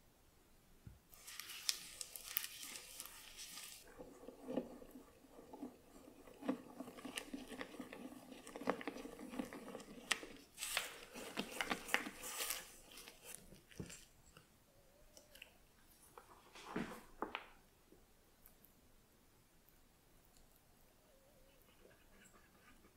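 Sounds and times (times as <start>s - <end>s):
faint steady hum: 0.0s - 22.9s
spatula scraping metal bowl: 3.8s - 10.4s.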